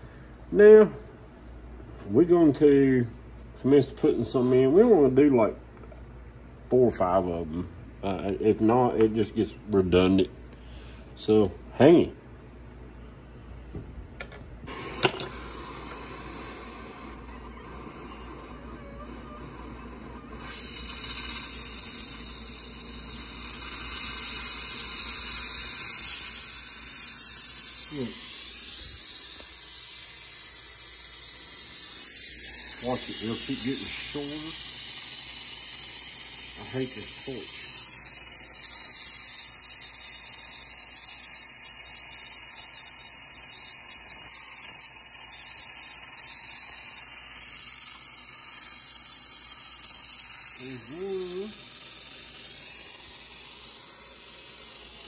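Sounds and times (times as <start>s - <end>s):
gas torch hissing: 14.7s - 55.0s.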